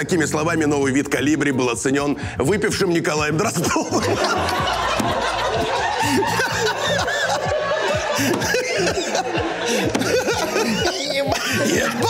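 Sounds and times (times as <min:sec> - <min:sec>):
people laughing together: 0:03.4 - 0:12.0.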